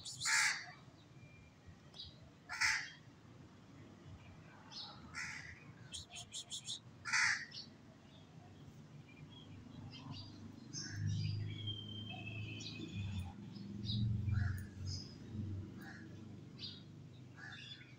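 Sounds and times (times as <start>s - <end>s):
small birds chirping: 0.0s - 1.1s, 5.8s - 6.8s, 7.5s - 17.9s
crows cawing: 0.3s - 0.7s, 2.5s - 3.0s, 5.2s - 5.6s, 7.0s - 7.6s, 14.3s - 14.8s, 15.8s - 16.2s, 17.4s - 17.8s.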